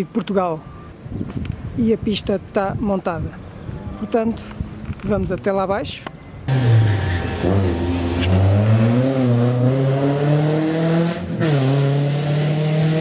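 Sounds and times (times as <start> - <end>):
rally car engine accelerating: 6.5 - 13.0.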